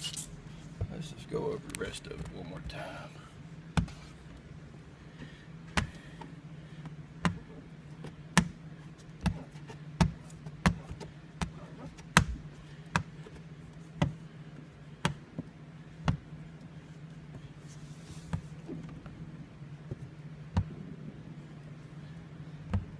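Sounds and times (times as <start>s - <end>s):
steady low hum: 0.0s - 22.9s.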